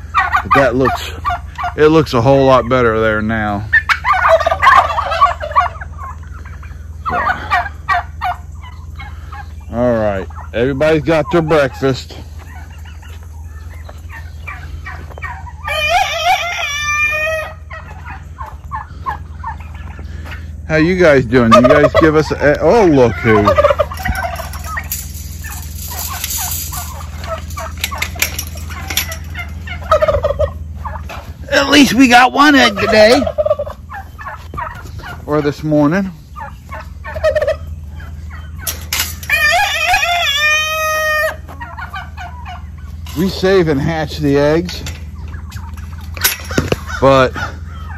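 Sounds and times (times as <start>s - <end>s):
turkey gobbling: 0.0s - 47.9s
turkeys calling: 0.0s - 47.9s.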